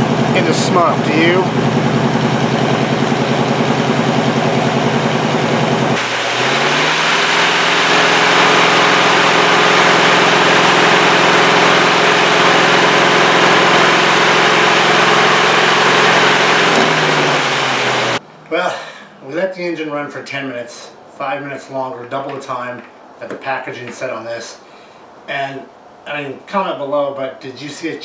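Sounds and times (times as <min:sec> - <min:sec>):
car engine idling and revving: 0:00.0 - 0:18.2.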